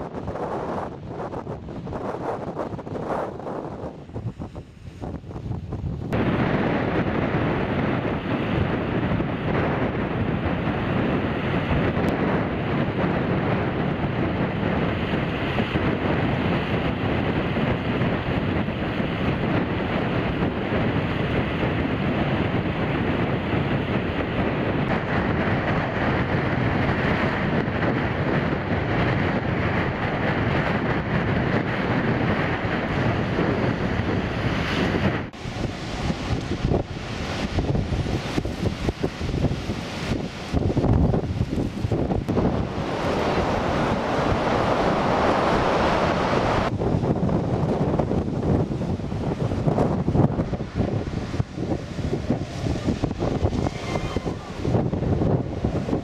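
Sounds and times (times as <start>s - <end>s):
rough sea rushing: 0.0s - 56.0s
wind buffeting microphone: 0.0s - 56.0s
water washing over road: 35.3s - 56.0s.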